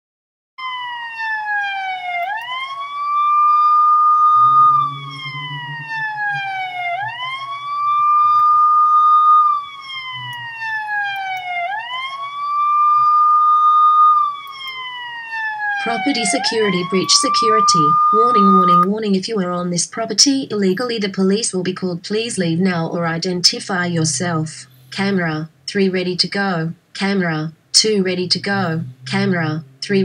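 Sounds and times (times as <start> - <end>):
police siren wailing: 0.6 - 20.8, 28.0 - 30.0.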